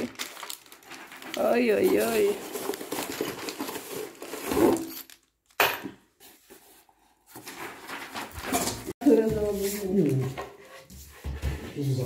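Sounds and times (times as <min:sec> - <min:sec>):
plastic bags rustling: 0:00.0 - 0:05.6.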